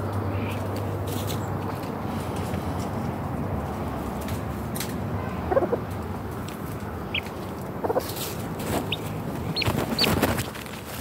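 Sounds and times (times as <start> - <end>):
chicken clucking: 5.5 - 5.9, 6.7 - 10.4.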